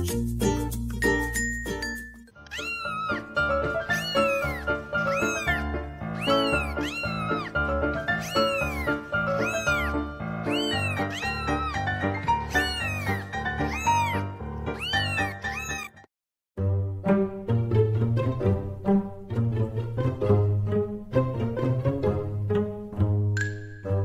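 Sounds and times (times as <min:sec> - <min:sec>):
background music: 0:00.0 - 0:16.0, 0:16.6 - 0:24.0
cat meowing: 0:02.4 - 0:16.1.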